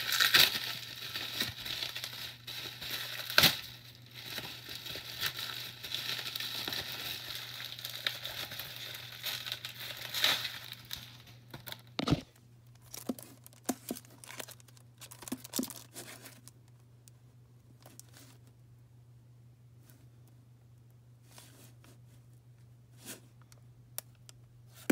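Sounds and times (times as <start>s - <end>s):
packaging crinkling: 0.0s - 12.2s, 12.8s - 16.6s.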